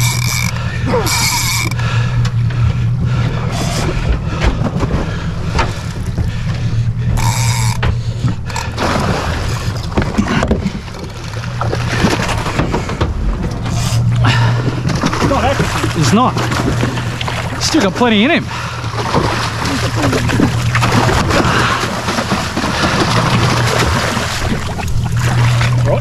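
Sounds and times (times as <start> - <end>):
boat engine running: 0.0 - 26.0
water splashing: 7.1 - 26.0.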